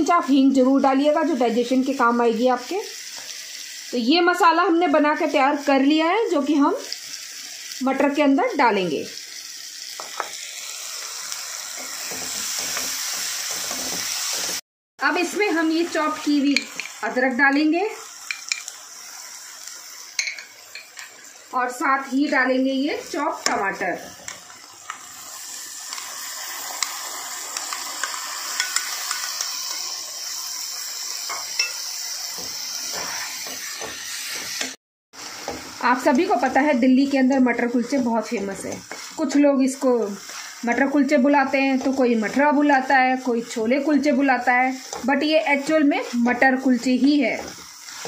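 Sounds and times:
onions sizzling in butter: 0.0 - 48.0
spatula scraping a pan: 32.4 - 35.7, 38.6 - 40.7, 44.7 - 48.0
spatula scraping metal pan: 32.8 - 34.8.

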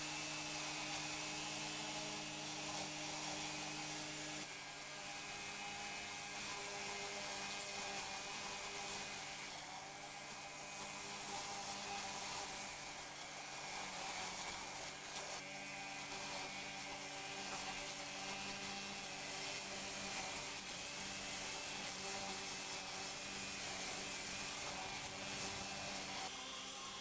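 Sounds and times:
pressure washer pump hum: 10.1 - 26.3
water spray hissing: 16.1 - 26.2.

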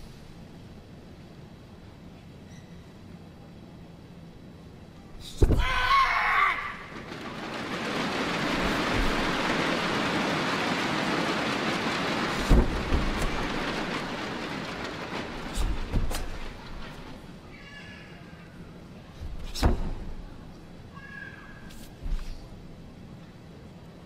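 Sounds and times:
person shouting kiai: 5.4 - 6.8
crowd applause: 6.2 - 17.4
low thumps of movements: 6.9 - 17.4.

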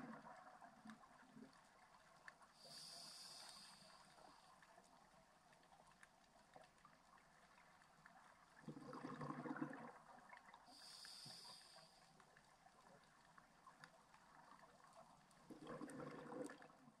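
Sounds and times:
hissing regulator inhale: 2.6 - 4.3, 10.7 - 12.0
exhaled bubbles underwater: 8.2 - 11.0, 14.3 - 17.0.

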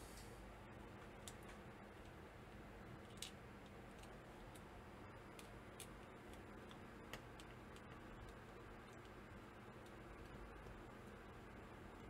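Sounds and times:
low room hiss: 0.0 - 12.0
small clicks and taps: 3.0 - 4.7, 5.3 - 9.2.

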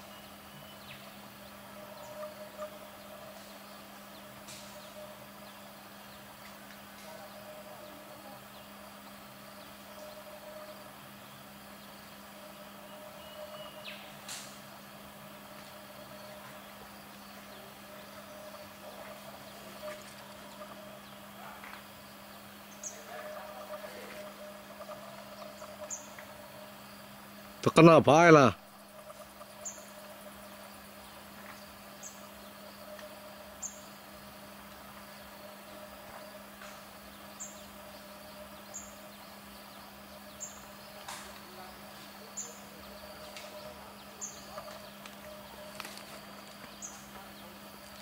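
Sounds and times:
low hum: 0.0 - 27.7
insect drone: 0.0 - 48.0
bird call: 12.4 - 14.6.

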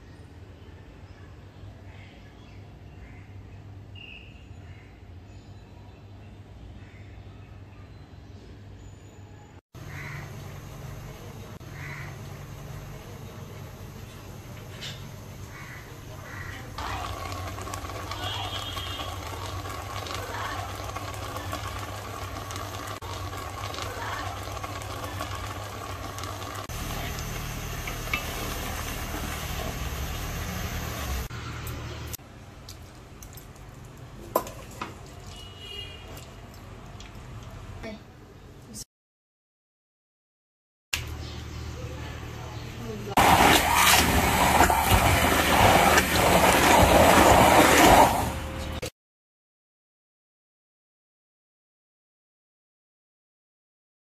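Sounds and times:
pot boiling: 9.8 - 32.1, 43.2 - 48.8
electric hand blender running: 25.3 - 31.3.

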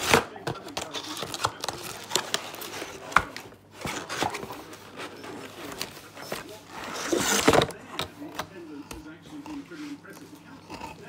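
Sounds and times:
packaging crinkling: 0.0 - 7.8.

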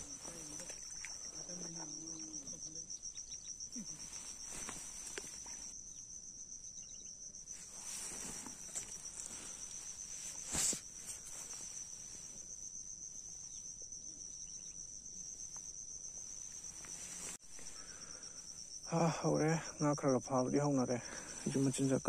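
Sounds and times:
insects chirring: 0.0 - 22.0
jacket sleeve rustling: 3.9 - 5.7, 7.6 - 12.4.

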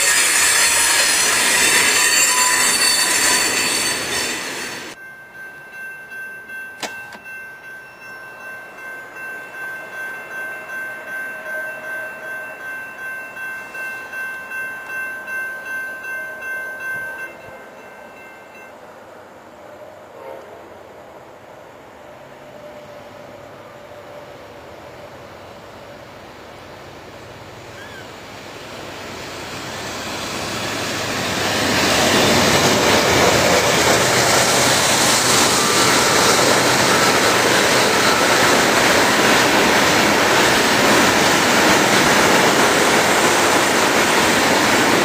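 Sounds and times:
train wheel squeal: 0.0 - 5.0, 27.7 - 28.2, 29.1 - 43.6
crossing warning bells ringing: 0.0 - 18.9, 28.8 - 45.0
freight train rolling past: 0.0 - 45.0.

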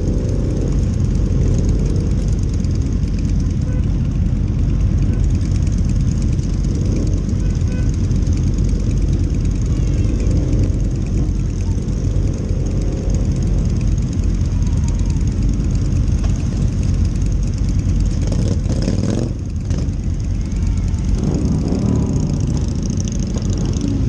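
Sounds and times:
motorcycle engines low rumble: 0.0 - 24.0.

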